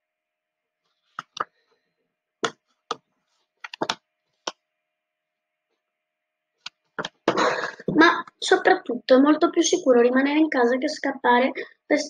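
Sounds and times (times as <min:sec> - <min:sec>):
book handling clicks and knocks: 0:01.1 - 0:01.5, 0:02.4 - 0:04.0.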